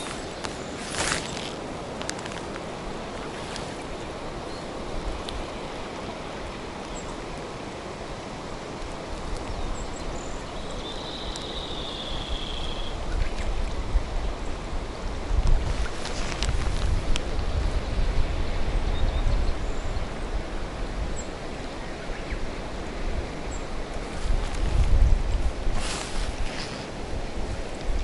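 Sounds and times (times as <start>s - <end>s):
low rumbling on microphone: 23.9s - 28.0s.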